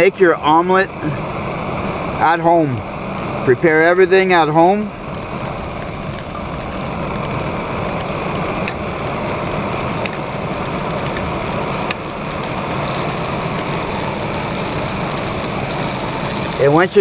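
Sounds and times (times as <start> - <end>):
camp stove burner hissing: 0.0 - 17.0
butter popping: 4.9 - 16.6.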